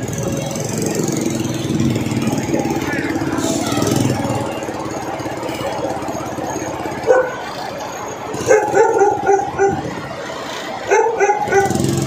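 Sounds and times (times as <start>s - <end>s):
heavy truck engine running: 0.0s - 12.0s
dog barking: 7.0s - 7.4s, 8.4s - 9.8s, 10.9s - 11.9s.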